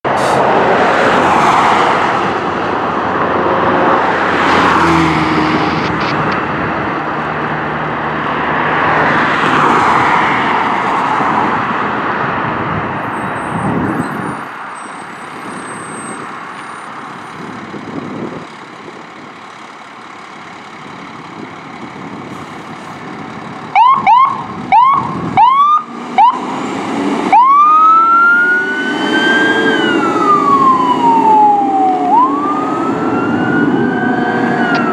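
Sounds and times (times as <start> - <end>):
loud rushing noise: 0.0 - 13.0
fire engine siren wailing: 23.7 - 34.9.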